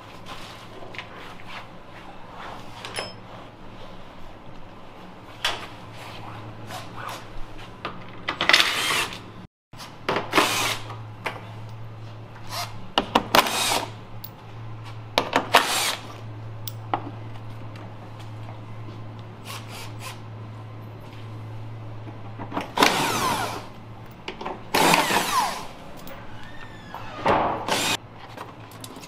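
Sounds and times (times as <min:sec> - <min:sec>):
steady low hum: 0:09.2 - 0:29.0
power tool running in bursts: 0:22.8 - 0:23.7, 0:24.7 - 0:25.8, 0:27.6 - 0:28.0.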